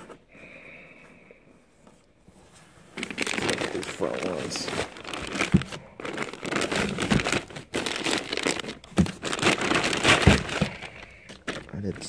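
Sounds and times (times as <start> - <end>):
plastic bags crinkling: 3.0 - 12.0.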